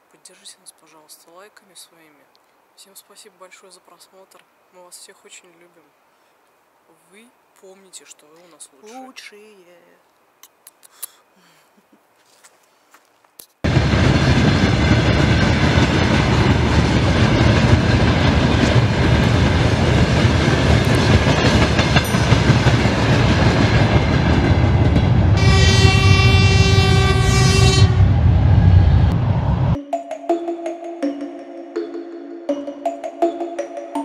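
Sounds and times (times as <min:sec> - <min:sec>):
loud steady rumbling: 0:13.7 - 0:29.8
sustained horn-like tone: 0:25.4 - 0:29.8.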